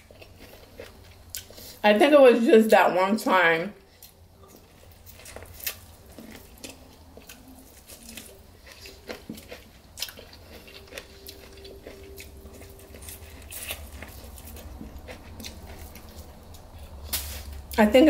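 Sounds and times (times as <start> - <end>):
chewing and lip smacks: 4.0 - 17.7.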